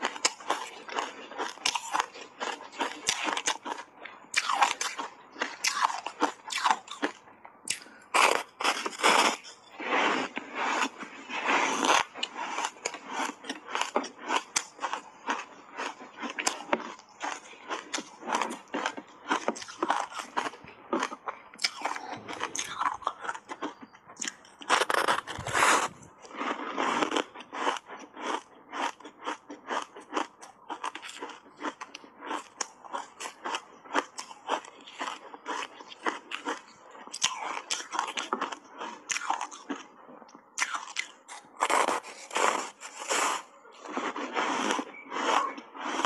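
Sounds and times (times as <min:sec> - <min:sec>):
ice being chewed: 0:00.0 - 0:46.0.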